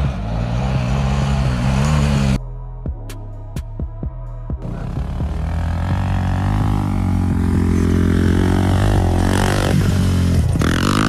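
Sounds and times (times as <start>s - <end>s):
atv engine revving: 0.0s - 2.4s, 4.6s - 11.0s.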